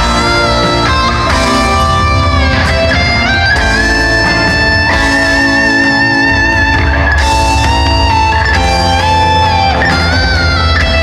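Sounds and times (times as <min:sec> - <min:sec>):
electric guitar sustained notes: 0:00.0 - 0:11.0
live rock band playing: 0:00.0 - 0:11.0.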